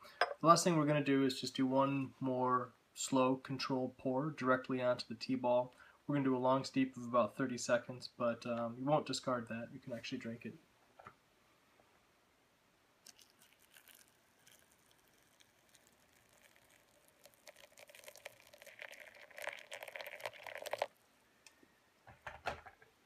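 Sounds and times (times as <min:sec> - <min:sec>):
water pouring from kettle: 0:13.0 - 0:21.0.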